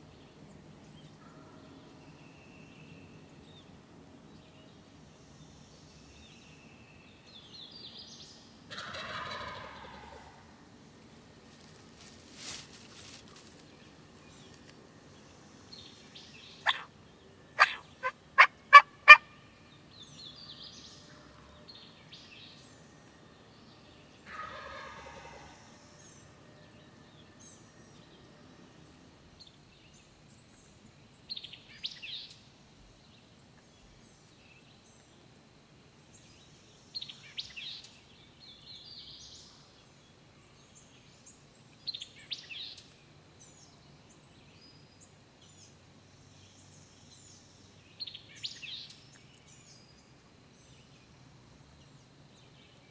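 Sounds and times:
songbirds chirping: 0:00.0 - 0:52.9
turkey clucking: 0:08.7 - 0:10.2, 0:16.7 - 0:16.9, 0:17.6 - 0:17.8, 0:18.4 - 0:19.2
turkey gobble: 0:08.7 - 0:10.4, 0:16.6 - 0:16.9, 0:17.6 - 0:19.3, 0:24.3 - 0:25.5.

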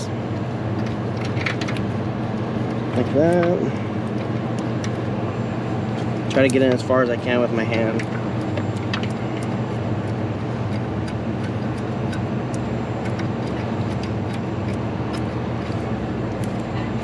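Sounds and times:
machinery humming: 0:00.0 - 0:17.0
metal parts clicking and tapping: 0:00.8 - 0:01.9, 0:07.7 - 0:09.6, 0:10.7 - 0:15.8.

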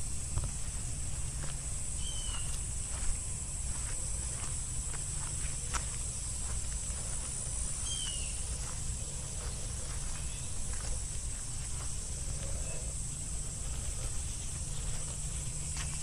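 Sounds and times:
footsteps in grass and leaves: 0:00.0 - 0:16.0
high insect drone: 0:00.0 - 0:16.0
bird chirp: 0:02.0 - 0:02.6, 0:07.8 - 0:08.7.

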